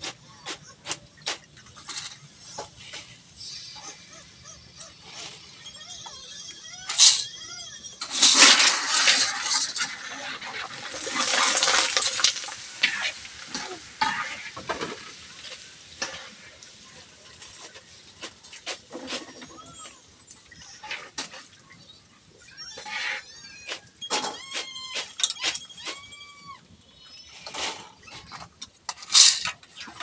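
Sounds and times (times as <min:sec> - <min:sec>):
food frying in hot oil: 0:10.1 - 0:18.5.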